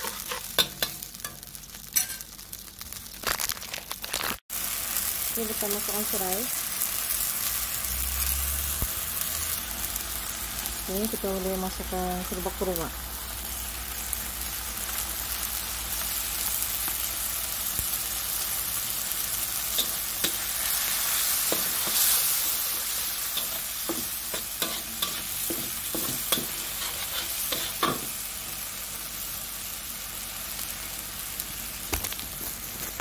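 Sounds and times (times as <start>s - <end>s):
metal turner scraping a wok: 0.0s - 2.2s, 19.7s - 28.2s
spice paste sizzling in oil: 0.0s - 33.0s.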